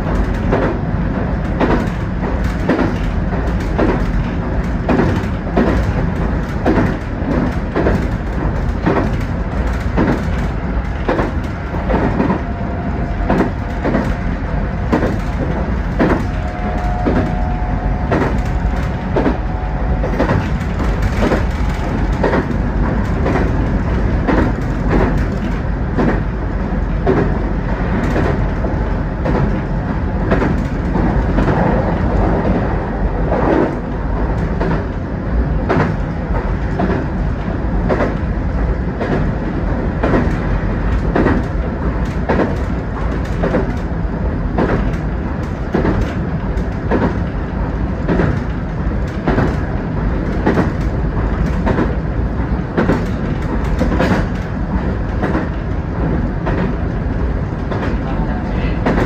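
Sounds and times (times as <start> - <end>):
wheels clicking over rail joints: 0.0 - 26.3, 40.0 - 59.0
train running rumble: 0.0 - 59.0.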